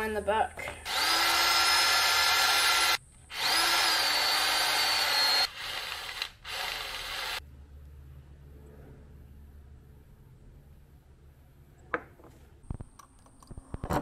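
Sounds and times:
cordless drill whining: 0.8s - 7.4s.

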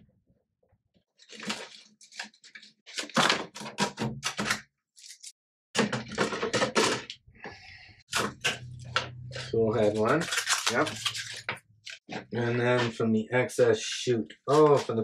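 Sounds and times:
knocks clacks and scrapes of handling: 1.2s - 13.0s.

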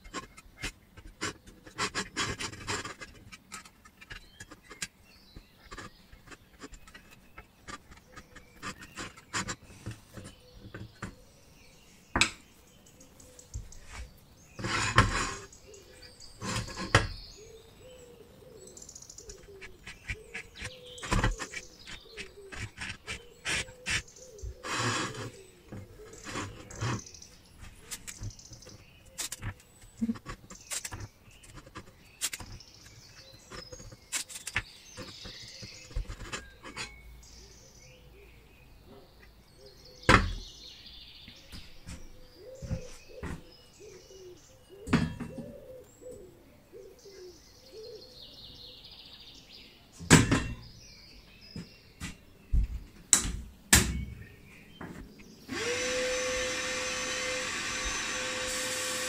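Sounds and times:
tape rasp: 0.0s - 11.2s, 13.8s - 17.2s, 19.2s - 27.1s, 27.7s - 37.0s, 55.5s - 59.0s
faint birds chirping: 0.0s - 59.0s.

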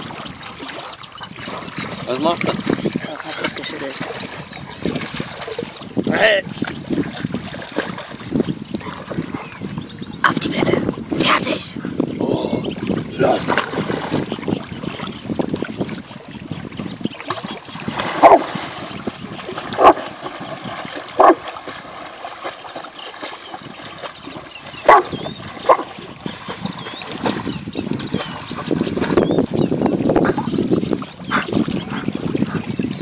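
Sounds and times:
water splashing and lapping: 0.0s - 33.0s
dog barking: 18.2s - 18.4s, 19.8s - 20.0s, 21.2s - 21.4s, 24.9s - 25.1s.

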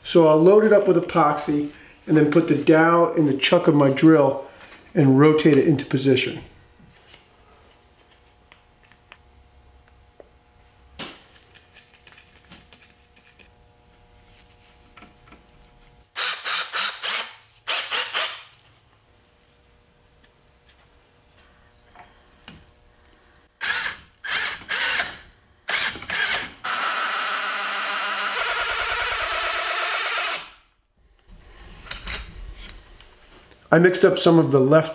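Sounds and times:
cordless drill running: 16.1s - 18.5s, 23.6s - 30.6s.

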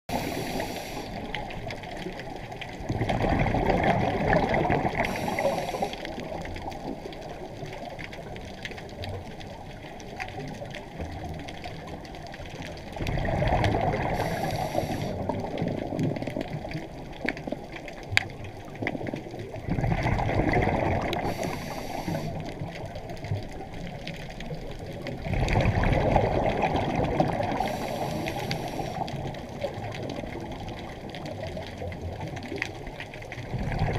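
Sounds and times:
steady watery hiss: 0.1s - 2.3s, 3.9s - 7.9s, 12.9s - 15.8s, 20.2s - 30.5s
underwater bubbles rushing: 0.1s - 33.9s.

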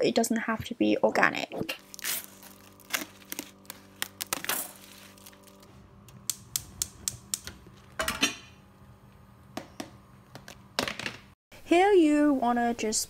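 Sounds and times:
gas burner rushing: 5.6s - 9.5s
gas hob igniter clicking: 6.0s - 8.4s.

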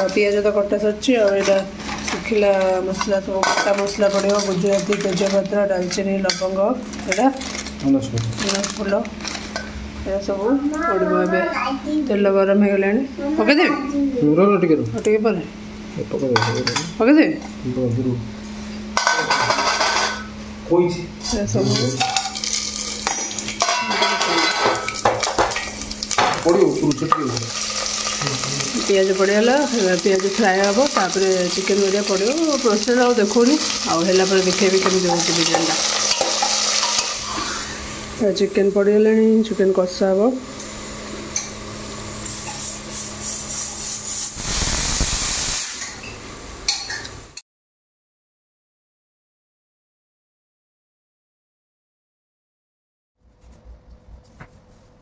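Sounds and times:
spices sizzling in hot oil: 0.0s - 9.7s, 21.6s - 38.2s, 40.5s - 46.0s
kitchen hum: 0.0s - 47.4s
steel bowl scraping a pot: 1.1s - 5.5s, 21.2s - 25.9s, 26.9s - 37.7s, 42.2s - 45.6s
steam hissing from pressure cooker: 26.5s - 38.1s, 41.8s - 46.0s.

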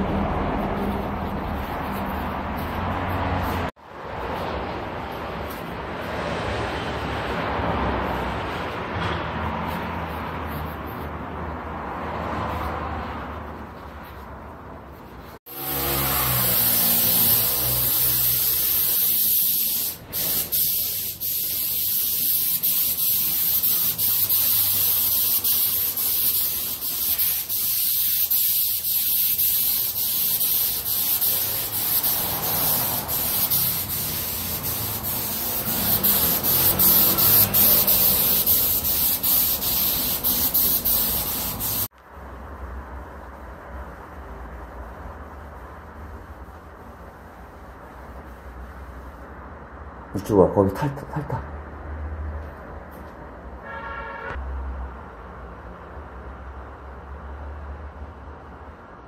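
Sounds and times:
air spray gun hissing: 15.4s - 41.9s.

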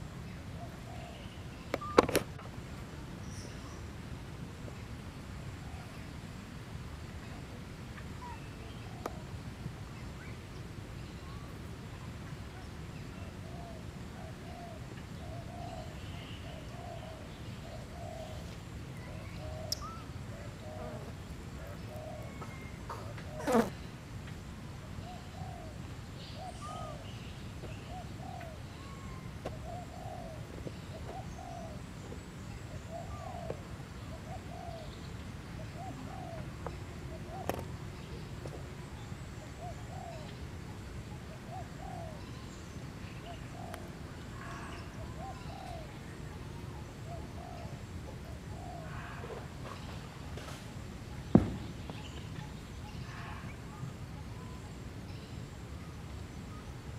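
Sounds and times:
single click: 1.7s - 2.3s
dove cooing: 13.4s - 23.8s, 27.7s - 31.9s, 32.5s - 35.0s, 35.6s - 37.8s, 41.2s - 42.4s, 43.2s - 50.0s.

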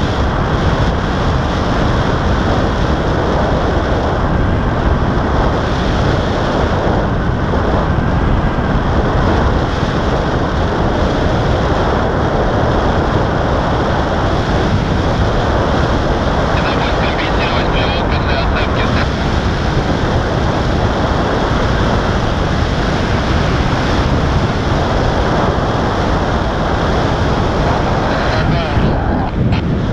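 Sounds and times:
wind buffeting microphone: 0.0s - 29.9s.

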